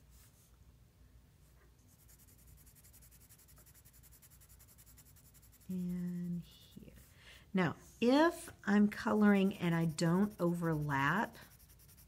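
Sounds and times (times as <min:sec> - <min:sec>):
pencil scratching on paper: 0:01.9 - 0:07.1, 0:09.0 - 0:12.0.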